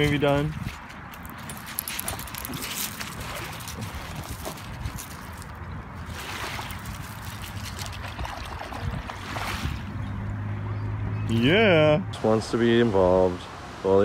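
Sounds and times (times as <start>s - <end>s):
water sloshing and splashing: 0.0s - 10.1s.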